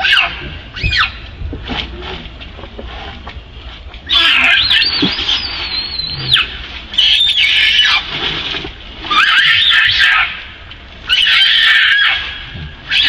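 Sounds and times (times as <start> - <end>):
macaque screaming: 0.0 - 1.2, 4.1 - 8.0, 9.1 - 10.4, 11.1 - 13.0.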